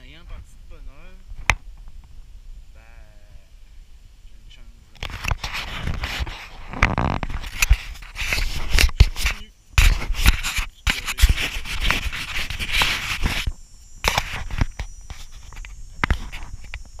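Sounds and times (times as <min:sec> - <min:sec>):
camera handling knocks and rubs: 0:05.0 - 0:17.0.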